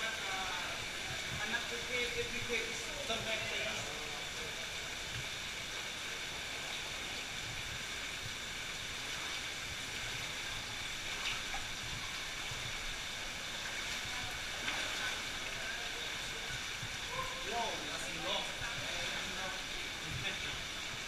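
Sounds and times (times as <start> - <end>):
rushing cave stream: 0.0 - 21.0
feet splashing in shallow water: 10.5 - 17.5.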